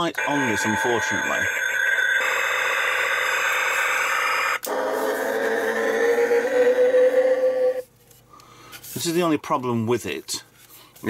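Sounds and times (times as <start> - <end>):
toy electronic sound effects: 0.0 - 7.7
slowly rising electronic tone: 0.2 - 7.8.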